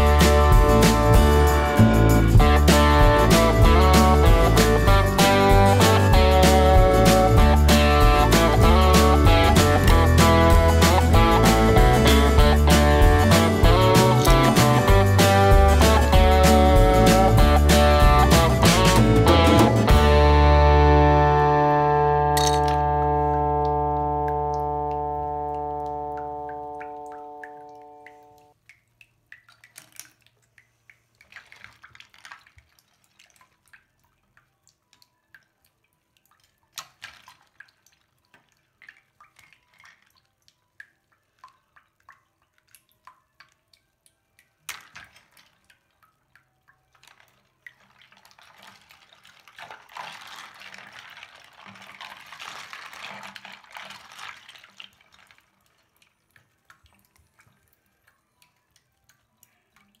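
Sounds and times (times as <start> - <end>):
water drips and small splashes: 0.0 - 60.0
hands swishing through soapy water: 48.0 - 55.4.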